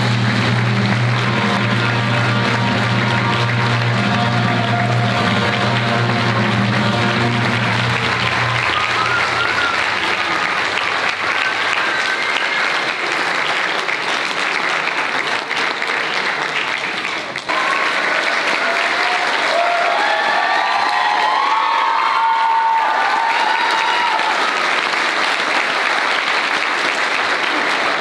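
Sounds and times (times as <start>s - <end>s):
held music chord: 0.0s - 11.8s
audience applauding: 0.0s - 28.0s.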